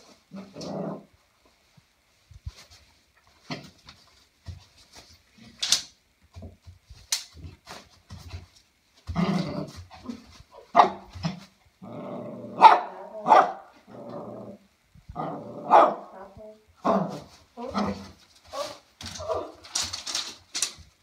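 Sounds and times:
dog growling: 0:00.3 - 0:01.1, 0:09.1 - 0:10.2, 0:11.8 - 0:18.1
small dog barking: 0:10.7 - 0:11.1, 0:12.6 - 0:13.7, 0:15.6 - 0:17.2.

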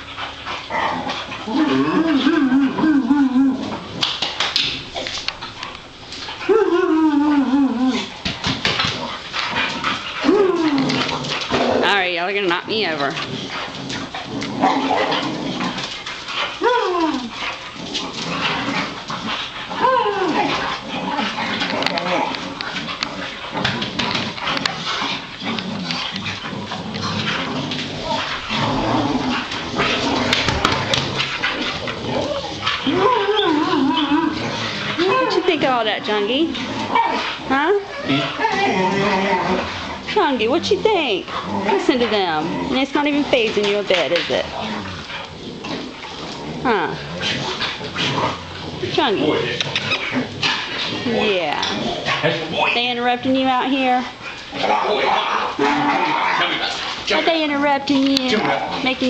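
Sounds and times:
dogs scuffling: 0:00.0 - 0:06.5, 0:07.9 - 0:59.0
dog whining: 0:00.7 - 0:03.9, 0:06.2 - 0:08.2, 0:10.1 - 0:11.2, 0:16.6 - 0:17.4, 0:19.7 - 0:24.7, 0:27.0 - 0:36.0, 0:36.8 - 0:45.0
slapping noises: 0:02.1 - 0:06.4, 0:07.9 - 0:38.6, 0:39.6 - 0:44.6.

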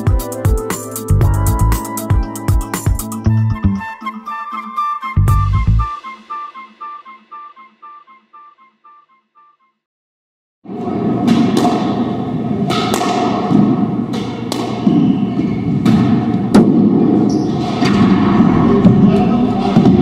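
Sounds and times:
squash ball cracks: 0:12.7 - 0:14.9.

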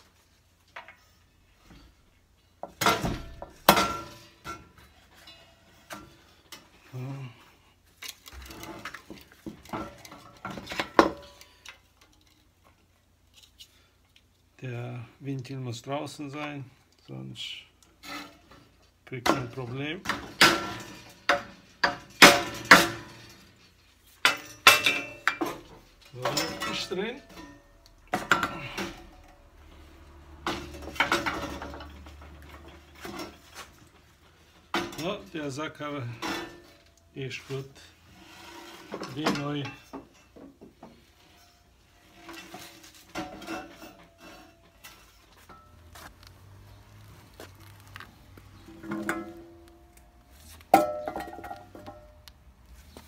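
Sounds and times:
metallic clanks and knocks: 0:02.6 - 0:06.7, 0:18.2 - 0:35.3, 0:36.1 - 0:37.1, 0:38.8 - 0:46.6, 0:48.3 - 0:52.3.

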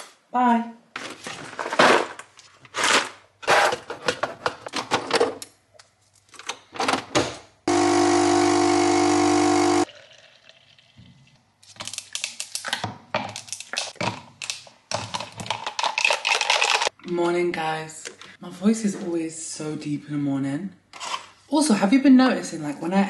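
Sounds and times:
coffee machine pump buzzing: 0:07.7 - 0:09.9.

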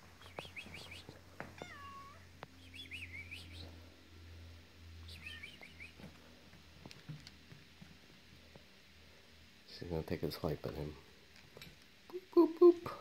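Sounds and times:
pet whining and squeaking: 0:00.2 - 0:03.6.

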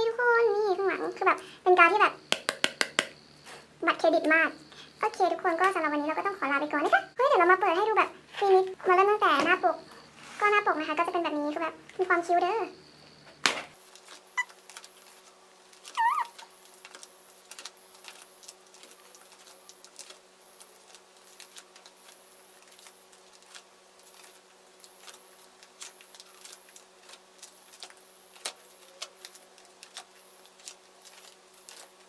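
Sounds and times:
plastic sleeves crinkling: 0:13.8 - 0:32.0.

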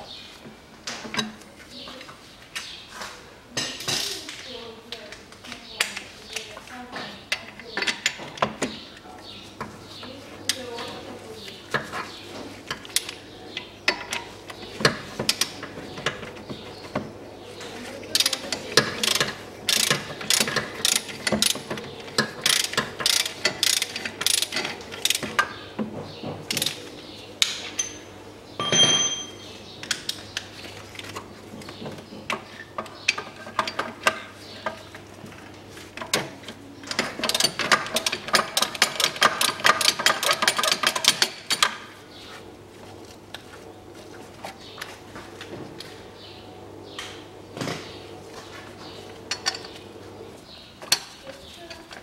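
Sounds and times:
socket ratchet clicking: 0:22.4 - 0:25.2
metal clink: 0:28.6 - 0:29.5.

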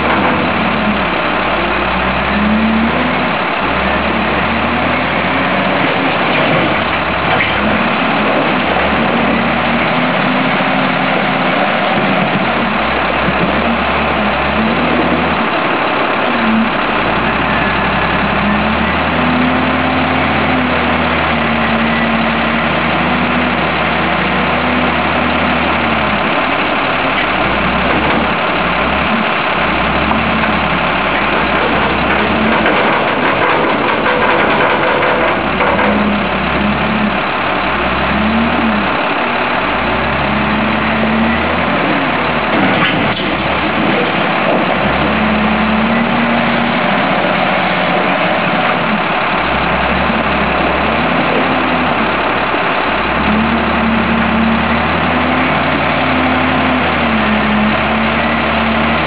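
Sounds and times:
wheel loader diesel engine revving: 0:00.0 - 0:59.0.

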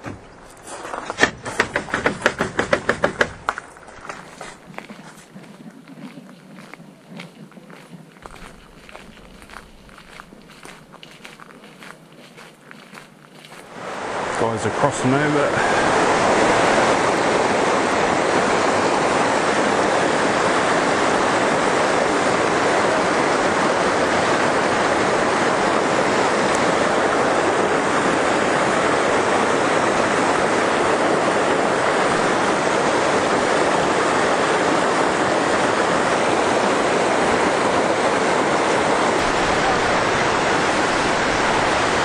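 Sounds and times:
river rushing over rocks: 0:13.6 - 0:42.0.

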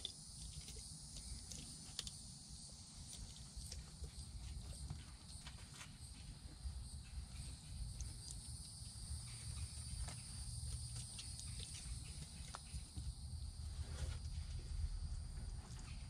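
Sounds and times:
high-pitched insect chorus: 0:00.0 - 0:16.0
low rumble: 0:13.0 - 0:16.0.

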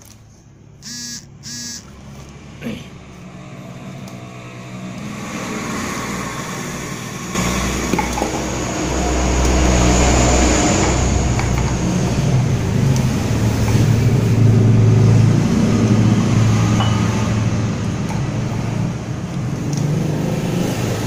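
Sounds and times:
short high-pitched calls: 0:00.8 - 0:01.9
engine-like rumble: 0:01.9 - 0:20.0.

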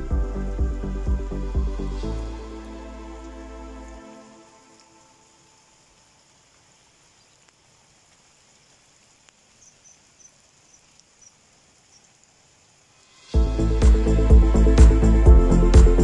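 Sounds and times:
loud electronic music with beat: 0:00.0 - 0:02.5, 0:13.4 - 0:16.0.

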